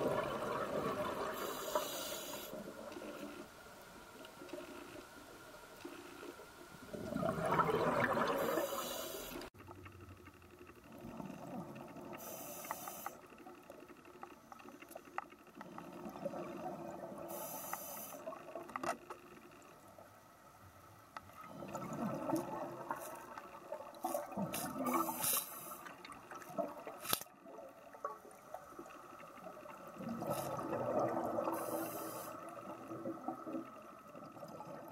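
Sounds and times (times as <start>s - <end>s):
exhaled bubbles rushing: 0.0s - 1.4s, 6.8s - 8.6s, 21.4s - 25.3s, 28.3s - 34.9s
regulator high hiss: 1.4s - 2.6s, 8.4s - 9.5s, 12.2s - 13.2s, 17.3s - 18.2s, 31.5s - 32.4s.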